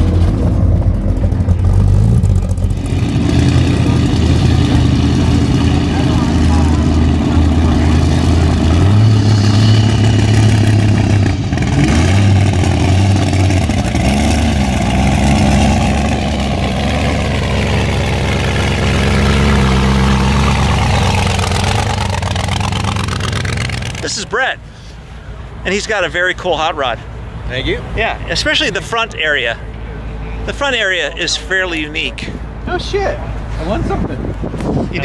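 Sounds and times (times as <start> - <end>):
hot rod engine idling and revving: 0.0 - 25.6.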